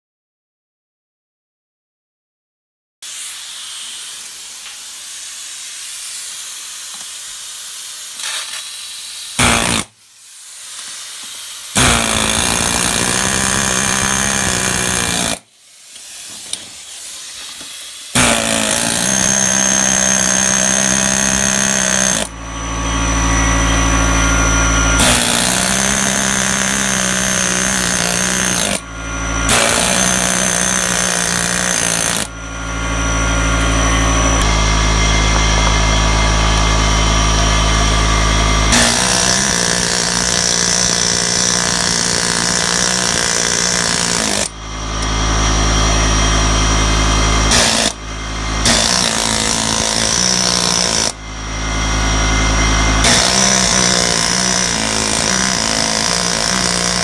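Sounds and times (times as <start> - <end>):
air hissing: 3.0 - 18.6
air hammer chiselling brick: 3.0 - 57.0
air compressor motor hum: 3.1 - 57.0.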